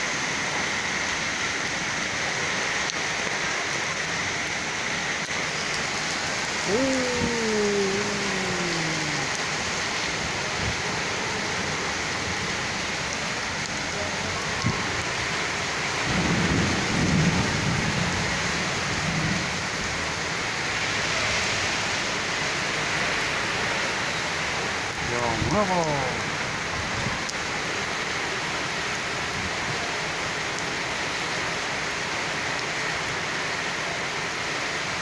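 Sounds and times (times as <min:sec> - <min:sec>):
hail and rain falling on cars: 0:00.9 - 0:35.0.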